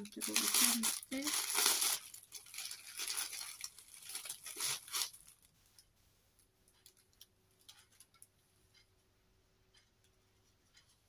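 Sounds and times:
plastic packaging rustling: 0:00.0 - 0:05.6.

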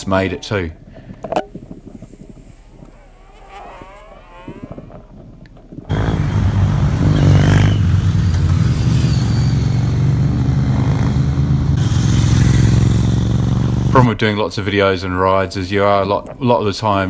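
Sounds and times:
motorcycles riding past: 0:05.9 - 0:14.0.

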